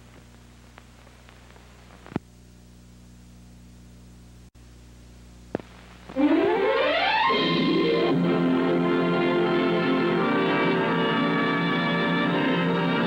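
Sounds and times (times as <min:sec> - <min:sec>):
mains hum: 0:00.0 - 0:13.0
tape hiss: 0:00.0 - 0:13.0
orchestral music: 0:06.2 - 0:13.0.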